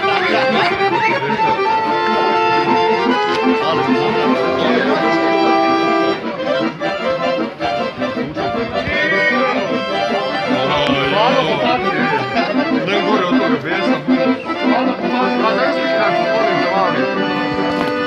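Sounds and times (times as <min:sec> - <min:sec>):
accordion folk music: 0:00.0 - 0:18.0.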